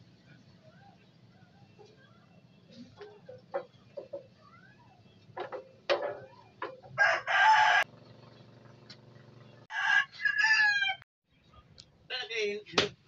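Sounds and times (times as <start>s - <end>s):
rooster crowing: 6.8s - 7.9s, 9.7s - 11.0s.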